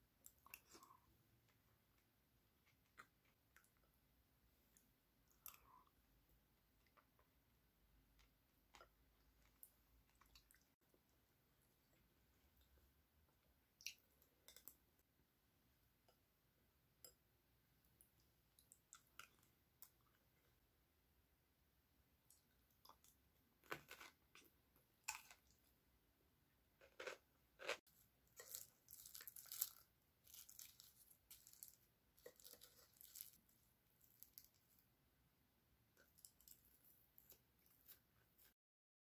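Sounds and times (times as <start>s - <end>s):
dry seaweed crackling: 28.4s - 33.4s.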